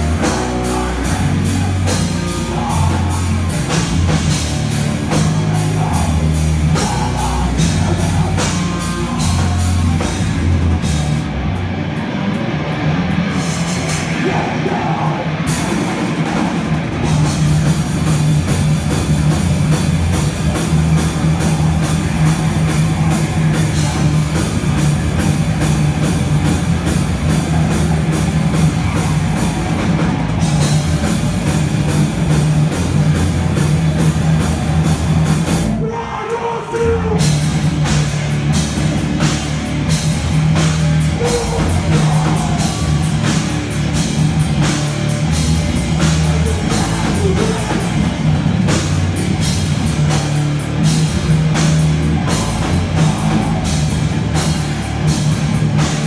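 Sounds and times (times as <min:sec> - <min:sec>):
fast drumming: 0:00.0 - 0:11.3, 0:13.1 - 0:35.8, 0:36.7 - 0:56.0
distorted electric guitars and bass: 0:00.0 - 0:56.0.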